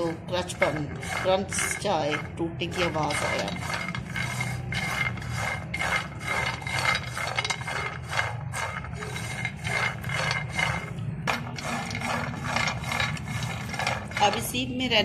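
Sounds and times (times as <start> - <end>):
low hum: 0.0 - 15.0
nuts rattling in a pan: 0.0 - 15.0
spatula scraping frying pan: 0.0 - 15.0.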